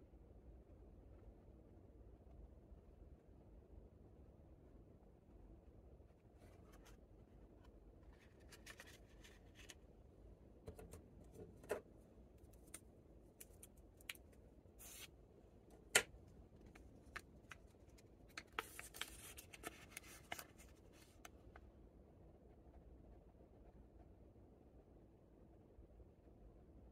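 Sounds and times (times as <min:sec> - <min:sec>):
candy wrappers rustling and crinkling: 0:16.6 - 0:21.2.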